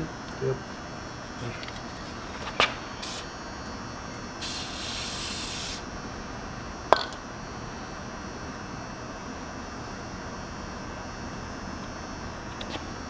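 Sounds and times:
aerosol spray hissing: 0:03.0 - 0:03.3, 0:04.4 - 0:05.8.

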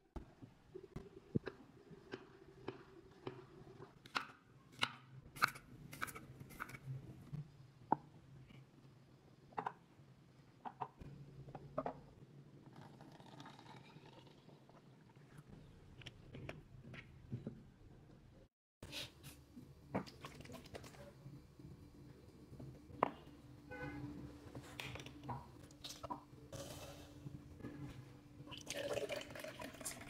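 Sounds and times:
water pouring into bottle: 0:28.5 - 0:30.0.

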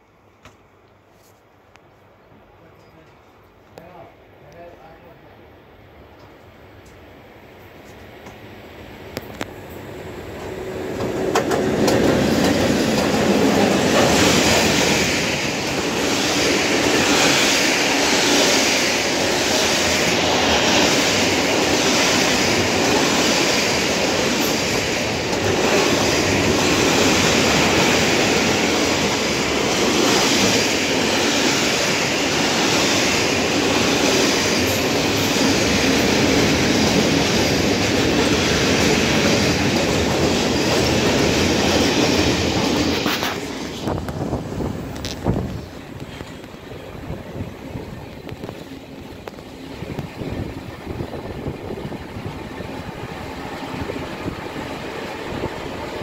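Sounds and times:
freight train rumbling past: 0:03.9 - 0:56.0
wheels clickety-clack over rail joints: 0:10.3 - 0:56.0.

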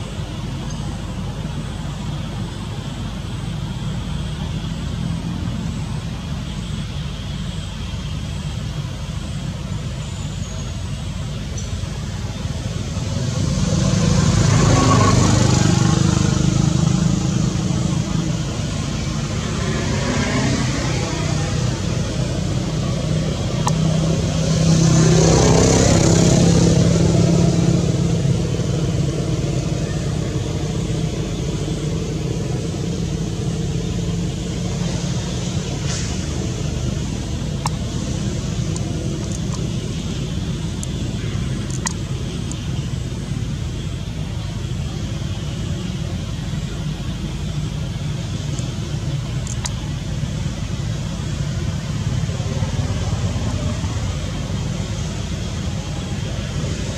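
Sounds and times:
traffic rumble: 0:00.0 - 0:56.9
vehicle passing by: 0:12.9 - 0:41.7
faint clicks: 0:41.6 - 0:42.6, 0:49.4 - 0:49.8.

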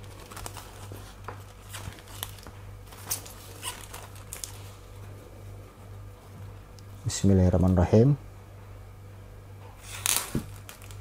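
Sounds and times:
plastic sheet crinkling: 0:00.0 - 0:05.0, 0:09.8 - 0:11.0.

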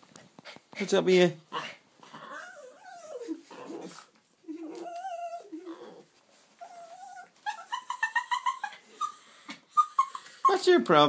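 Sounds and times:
dog whining: 0:02.0 - 0:10.6
dog whimpering yips: 0:02.2 - 0:06.0, 0:06.6 - 0:10.2.

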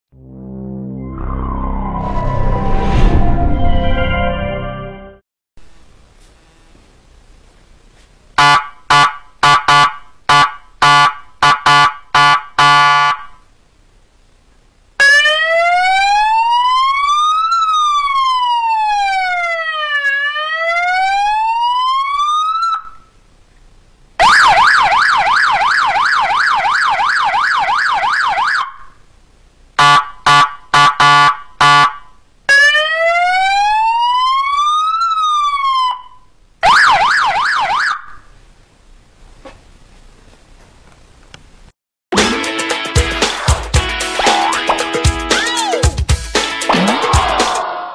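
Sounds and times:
electronic siren horn blasts: 0:08.4 - 0:13.4, 0:29.8 - 0:33.5
fast warbling siren yelp: 0:15.0 - 0:23.1, 0:24.2 - 0:29.0, 0:32.5 - 0:38.3, 0:44.1 - 0:45.9, 0:46.7 - 0:47.9
siren wail: 0:15.0 - 0:23.1, 0:24.2 - 0:28.9, 0:32.5 - 0:38.3, 0:44.1 - 0:45.9, 0:46.7 - 0:47.9.

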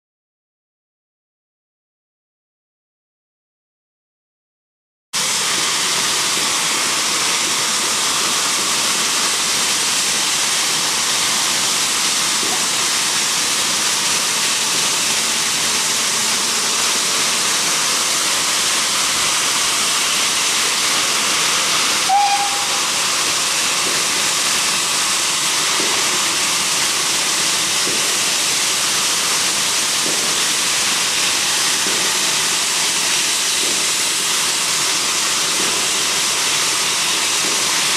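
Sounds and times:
locomotive blowing off steam: 0:05.2 - 0:37.9
short high chirp: 0:22.1 - 0:22.9.

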